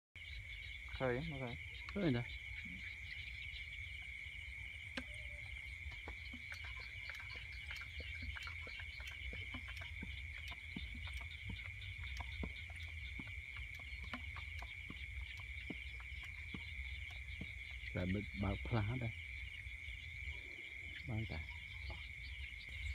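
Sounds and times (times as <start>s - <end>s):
crickets trilling: 0.2s - 22.9s
insects chirring: 0.2s - 22.9s.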